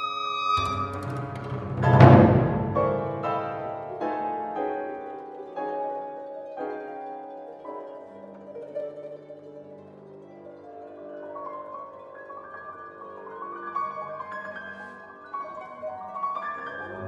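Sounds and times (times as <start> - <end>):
chamber ensemble music: 0.0 - 17.0
loud crash: 0.6 - 4.0.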